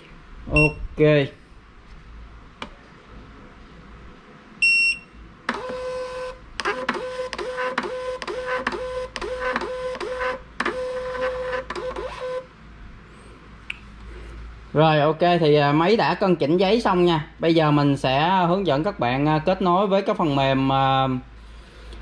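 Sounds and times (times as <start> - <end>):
printer beep: 0.5 - 0.8, 4.6 - 12.5
printer paper-feed motor: 5.5 - 12.5.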